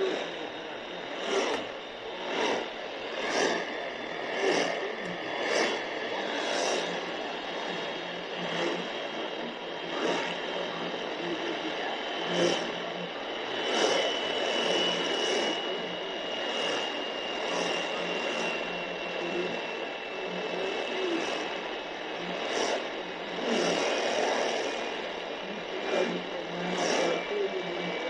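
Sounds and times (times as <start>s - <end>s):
radio static hiss: 0.0s - 28.0s.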